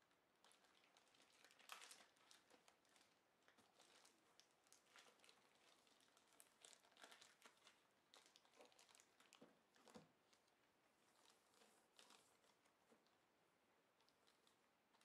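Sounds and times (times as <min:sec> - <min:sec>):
plastic wrap crinkling: 0:00.4 - 0:13.2, 0:14.0 - 0:15.0.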